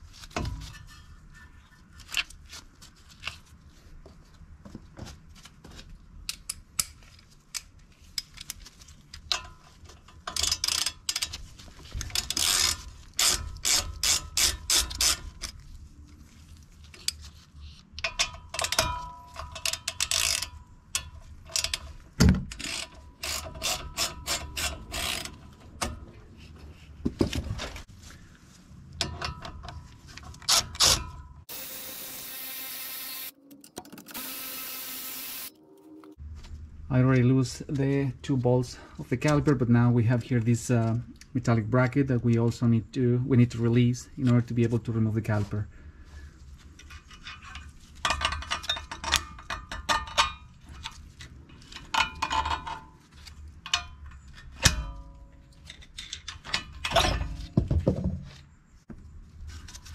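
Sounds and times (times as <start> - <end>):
ratchet wrench clicking: 10.3 - 11.3, 12.1 - 15.2, 19.6 - 21.8, 22.5 - 25.3.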